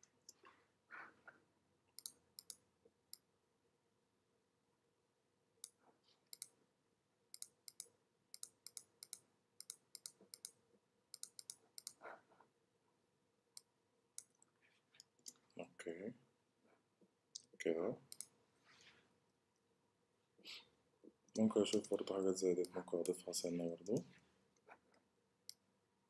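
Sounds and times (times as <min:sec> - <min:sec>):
mouse and keyboard clicks: 0:02.0 - 0:03.2, 0:07.4 - 0:12.0, 0:21.6 - 0:23.2.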